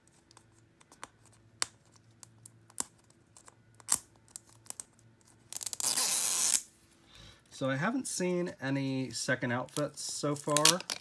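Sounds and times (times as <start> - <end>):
toy packaging clicks and taps: 10.5 - 11.0.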